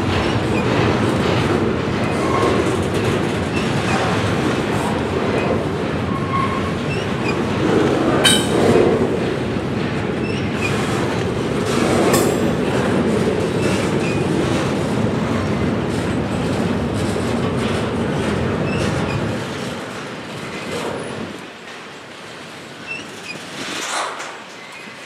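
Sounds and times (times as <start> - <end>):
train wheels clattering over rails: 0.0 - 25.0.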